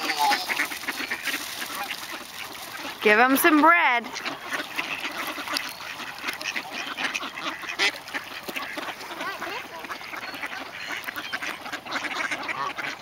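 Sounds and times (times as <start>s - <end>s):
flock of ducks quacking: 0.0s - 13.0s.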